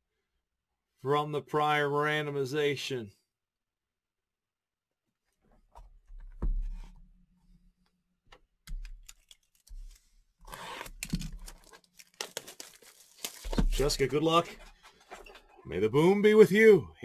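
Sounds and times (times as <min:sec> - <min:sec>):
plastic shrink wrap tearing: 0:09.0 - 0:14.5.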